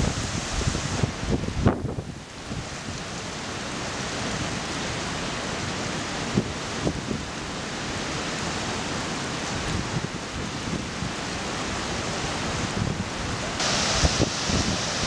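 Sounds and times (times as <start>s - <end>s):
wind buffeting microphone: 0.0s - 3.0s, 12.1s - 15.0s
river water rushing: 0.0s - 15.0s.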